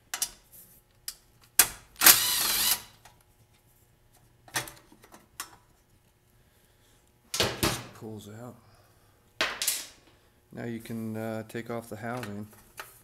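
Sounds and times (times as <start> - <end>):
cordless drill motor whine: 2.0 - 2.9.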